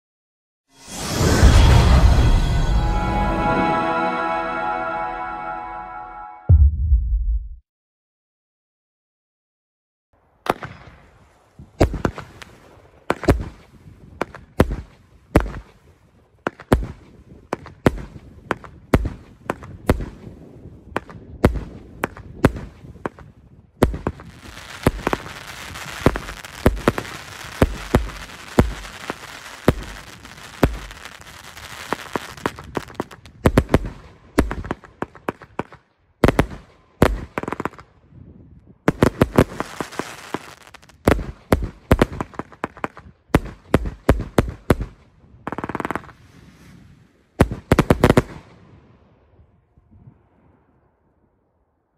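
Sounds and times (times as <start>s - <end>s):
fireworks shots and bursts: 10.4s - 38.0s, 38.8s - 48.9s
crackling hiss of fireworks: 10.5s - 35.7s, 38.9s - 44.8s, 45.4s - 48.4s.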